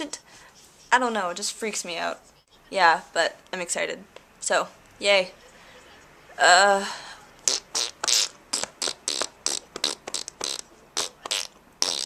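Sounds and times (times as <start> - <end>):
person making mouth noises: 7.4 - 12.0.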